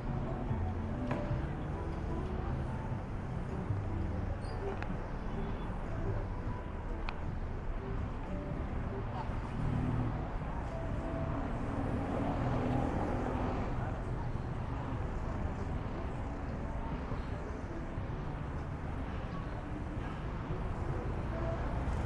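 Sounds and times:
motorbikes and cars passing: 0:08.3 - 0:22.0.

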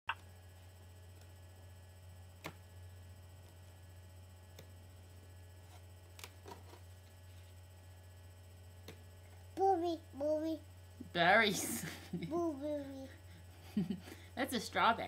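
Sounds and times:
low electrical hum: 0:00.1 - 0:15.0.

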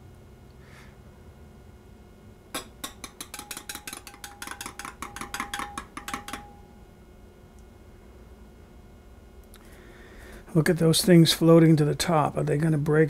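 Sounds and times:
teaspoon clinking in glass cup: 0:02.6 - 0:06.7.

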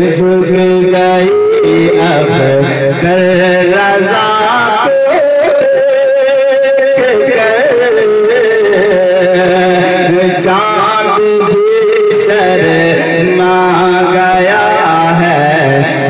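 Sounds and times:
low drone: 0:00.0 - 0:06.0
man singing into microphone: 0:00.0 - 0:16.0.

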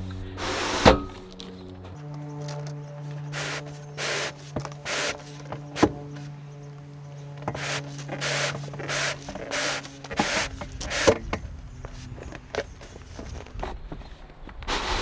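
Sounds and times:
fabric cord rubbing through track: 0:00.0 - 0:06.3, 0:07.4 - 0:11.3.

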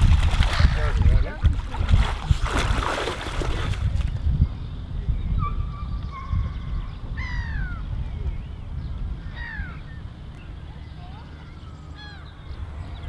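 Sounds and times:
steady low rumble: 0:00.0 - 0:13.0
harsh bird calls: 0:05.2 - 0:13.0.

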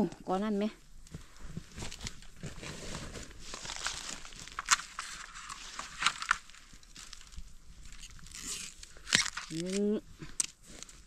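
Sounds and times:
leaf litter crackling and rustling: 0:01.7 - 0:10.0
twigs snapping: 0:03.5 - 0:11.0.

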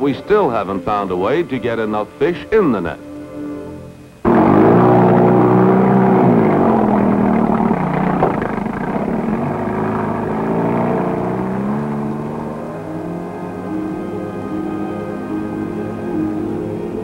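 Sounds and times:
outboard motor running: 0:04.3 - 0:14.0.

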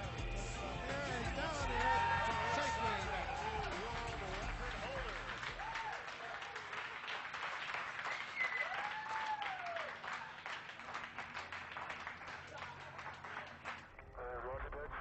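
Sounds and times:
crowd applauding and cheering: 0:00.0 - 0:14.0
person whooping: 0:05.5 - 0:06.1, 0:08.4 - 0:10.3.

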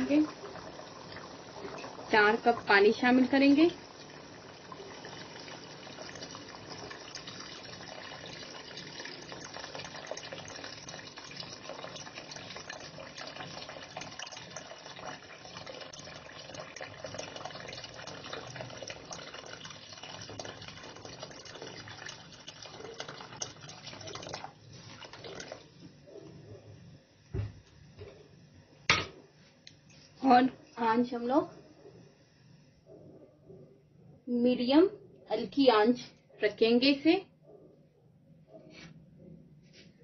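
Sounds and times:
water pouring into a pot: 0:00.0 - 0:26.0.

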